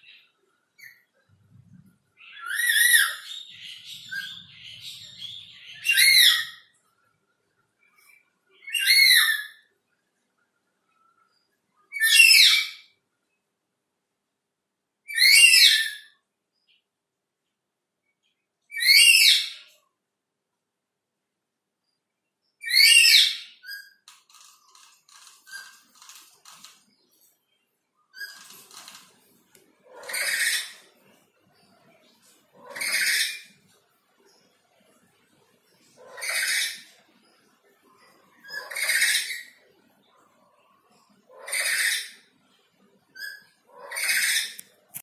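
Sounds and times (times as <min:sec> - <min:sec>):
parrot shrill screech: 0:15.1 - 0:16.1, 0:18.8 - 0:19.6, 0:22.6 - 0:23.8, 0:30.1 - 0:30.8, 0:36.2 - 0:36.8
lories chattering: 0:28.2 - 0:31.0
lories screeching: 0:29.9 - 0:30.9.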